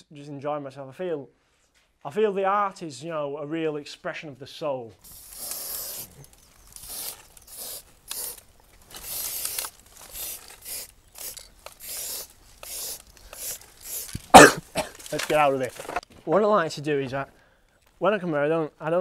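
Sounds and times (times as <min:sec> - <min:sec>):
spray paint can hissing: 0:05.0 - 0:14.8.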